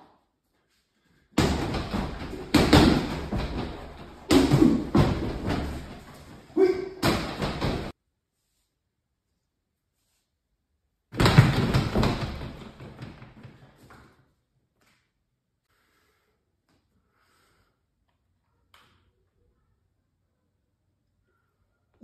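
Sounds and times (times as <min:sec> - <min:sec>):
punches thudding on punching bag: 0:01.4 - 0:06.3, 0:07.0 - 0:07.9, 0:11.2 - 0:12.9.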